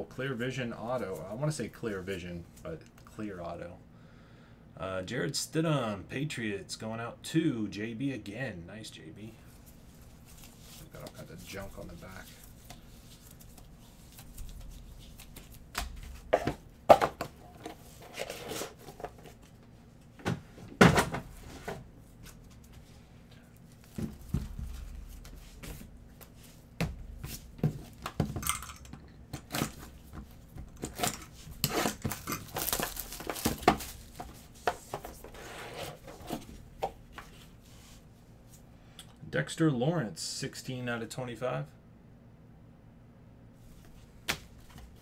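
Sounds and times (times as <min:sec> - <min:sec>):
cardboard rubbing: 0:29.5 - 0:38.0
packaging crinkling and tearing: 0:30.8 - 0:34.3.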